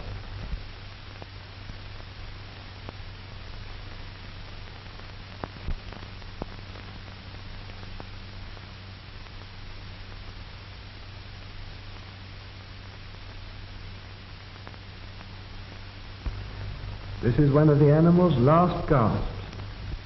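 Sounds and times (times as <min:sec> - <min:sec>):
film soundtrack hiss: 0:00.0 - 0:20.0
low hum: 0:00.0 - 0:20.0
faint clicks: 0:19.4 - 0:20.0.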